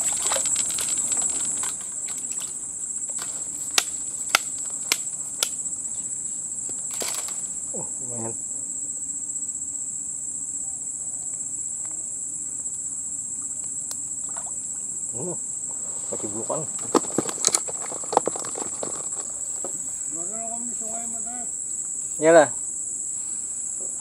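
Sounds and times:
rustling: 0:00.0 - 0:07.6, 0:15.7 - 0:20.2
insects droning: 0:00.0 - 0:24.0.

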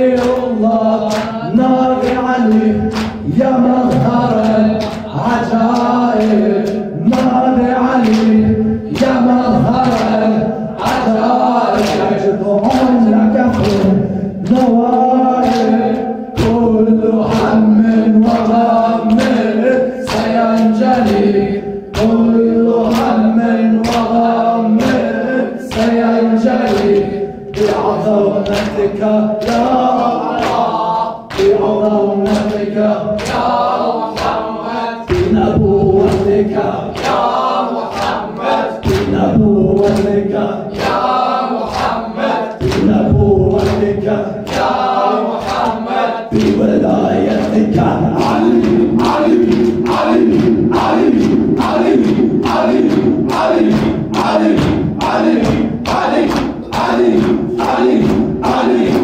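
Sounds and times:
man singing into microphone: 0:00.0 - 0:33.3, 0:35.0 - 0:37.0, 0:38.7 - 0:40.8, 0:42.4 - 0:44.6, 0:46.2 - 0:56.0
men chanting: 0:00.0 - 0:59.0.

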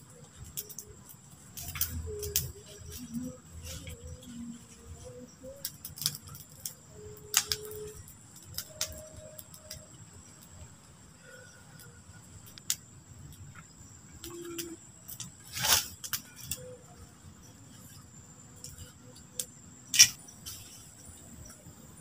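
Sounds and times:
campfire crackling and popping: 0:00.0 - 0:04.2, 0:05.5 - 0:10.9, 0:11.8 - 0:16.6, 0:19.4 - 0:20.3
night insects trilling: 0:00.0 - 0:22.0.

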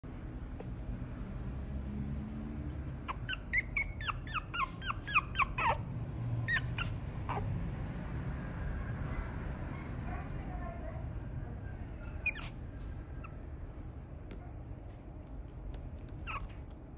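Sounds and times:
puppy squeaky whines: 0:02.9 - 0:07.5, 0:12.0 - 0:13.5, 0:16.0 - 0:16.8.

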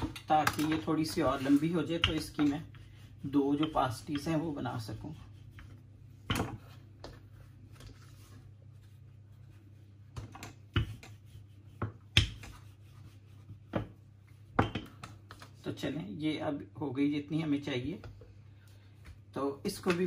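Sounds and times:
rolling pin knocking on board: 0:11.8 - 0:12.6, 0:13.7 - 0:14.0.

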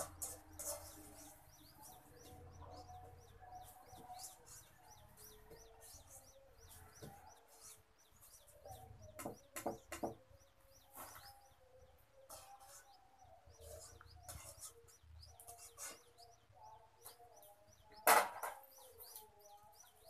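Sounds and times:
cluster of knocks: 0:09.2 - 0:10.2, 0:18.0 - 0:18.6.

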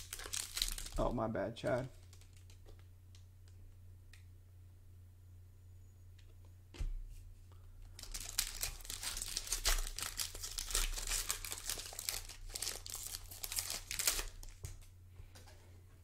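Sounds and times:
foil wrapper crinkling and tearing: 0:00.0 - 0:02.8, 0:08.0 - 0:14.7.

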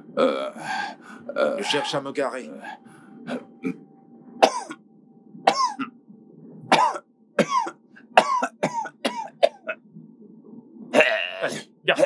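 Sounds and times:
man coughing: 0:06.8 - 0:09.8.

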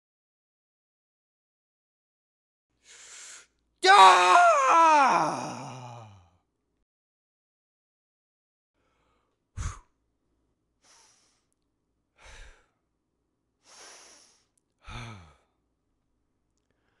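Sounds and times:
person breathing: 0:02.8 - 0:03.5, 0:08.8 - 0:09.9, 0:10.8 - 0:11.5, 0:12.2 - 0:12.8, 0:13.6 - 0:15.6, 0:16.7 - 0:17.0
voiced sigh: 0:02.9 - 0:06.3, 0:14.8 - 0:15.5.

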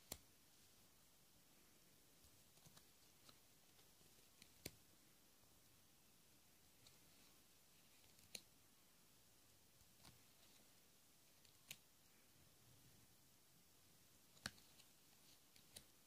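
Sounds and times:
cards clicking: 0:14.3 - 0:15.9.

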